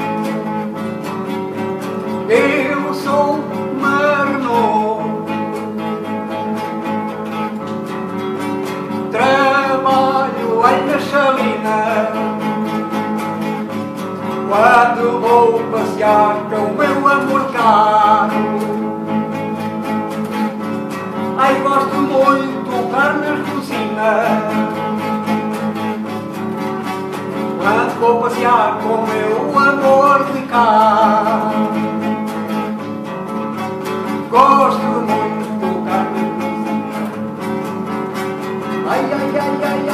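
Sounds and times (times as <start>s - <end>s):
classical guitar strumming: 0.0s - 39.9s
man singing: 2.1s - 5.8s, 9.0s - 12.9s, 14.3s - 19.0s, 21.4s - 25.6s, 27.5s - 32.5s, 34.0s - 37.2s, 38.6s - 39.9s.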